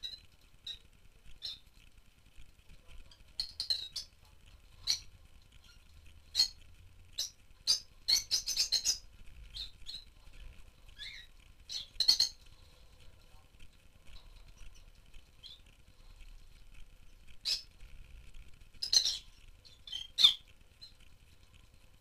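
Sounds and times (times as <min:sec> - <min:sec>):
birds chirping high-pitched: 0:00.0 - 0:01.8, 0:03.0 - 0:12.8, 0:14.0 - 0:16.2, 0:17.0 - 0:17.8, 0:18.8 - 0:21.1.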